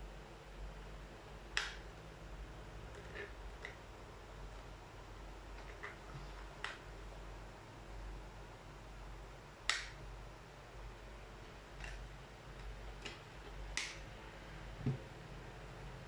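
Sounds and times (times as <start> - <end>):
dull knock on table: 14.8 - 15.0.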